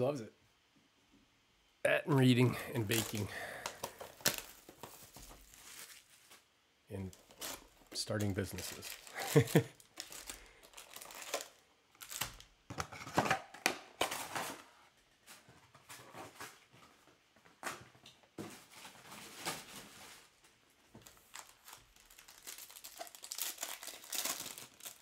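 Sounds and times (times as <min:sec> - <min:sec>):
card wrappers rustling: 0:02.3 - 0:12.5, 0:21.0 - 0:25.0.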